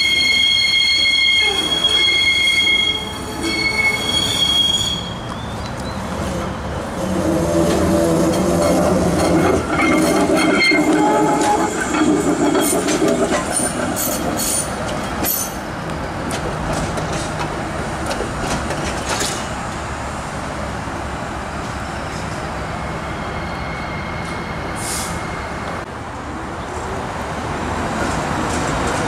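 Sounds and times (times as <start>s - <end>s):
streetcar rumble: 0.0s - 29.0s
streetcar wheels clacking over rails: 5.2s - 20.1s, 27.4s - 29.0s.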